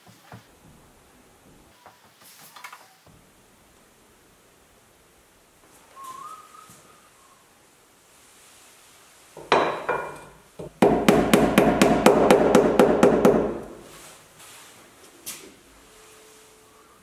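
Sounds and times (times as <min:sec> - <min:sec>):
hammer striking steel rod: 0:09.4 - 0:13.8.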